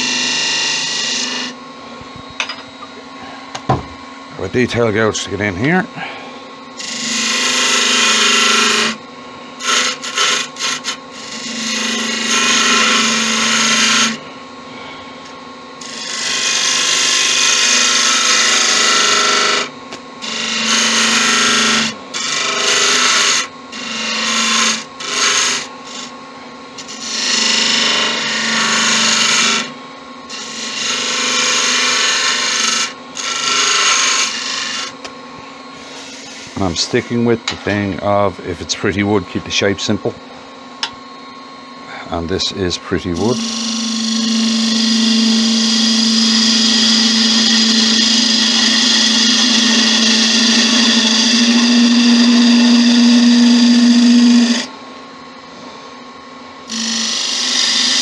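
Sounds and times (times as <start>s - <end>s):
gouge cutting wood on a lathe: 0.0s - 1.6s, 6.8s - 9.0s, 9.6s - 14.2s, 15.8s - 26.1s, 26.8s - 29.7s, 30.3s - 35.0s, 43.0s - 54.7s, 56.7s - 58.0s
lathe humming: 0.0s - 54.9s, 56.3s - 58.0s.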